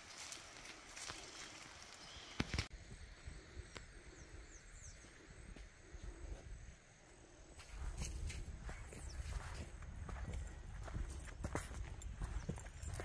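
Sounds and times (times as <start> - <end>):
insects: 0.0 - 8.2.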